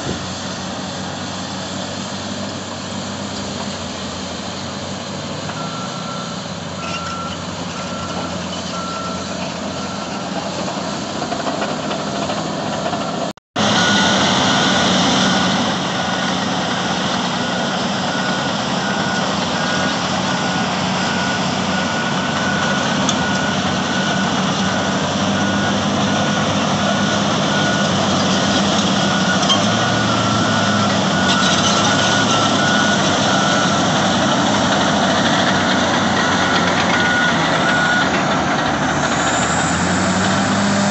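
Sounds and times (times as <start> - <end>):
heavy diesel engines under load: 0.0 - 40.9
backup alarm beeping: 29.0 - 38.2.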